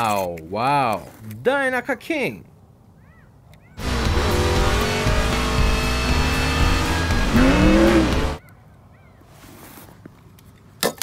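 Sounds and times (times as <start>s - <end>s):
race car engines at speed: 3.8s - 8.4s.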